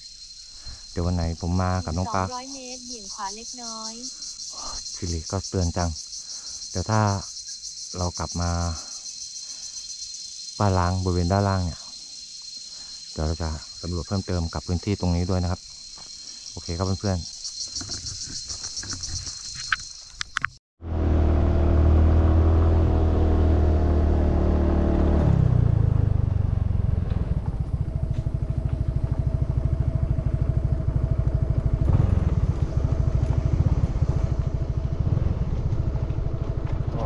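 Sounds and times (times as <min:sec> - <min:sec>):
motorcycle engine running: 0:20.9 - 0:37.0.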